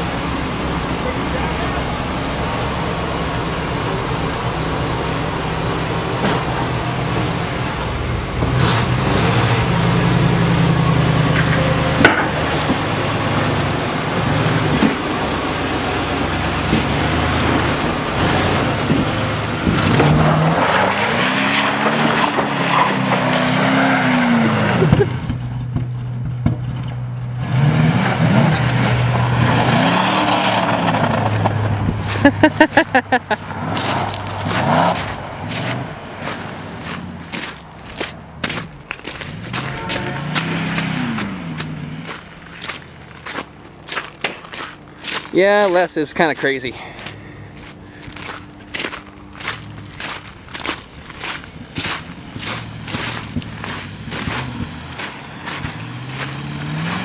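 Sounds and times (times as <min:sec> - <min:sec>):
car engine revving hard: 0:08.2 - 0:25.3, 0:27.4 - 0:32.5, 0:33.4 - 0:43.3, 0:47.6 - 0:57.0
wheels spinning in mud and snow: 0:12.5 - 0:57.0.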